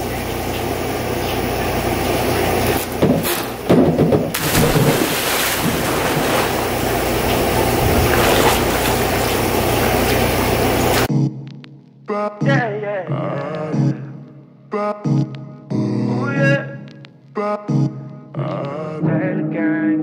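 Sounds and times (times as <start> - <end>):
water splashing and sloshing: 0.5 - 11.1
person plunging into pool: 2.8 - 11.1
steady rushing noise: 4.4 - 11.1.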